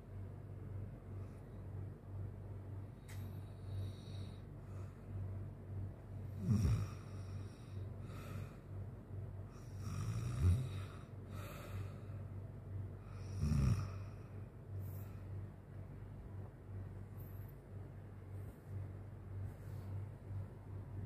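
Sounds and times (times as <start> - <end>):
steady low hum: 0.0 - 21.0
man snoring: 3.6 - 4.4, 6.2 - 8.2, 9.5 - 11.9, 13.1 - 14.2.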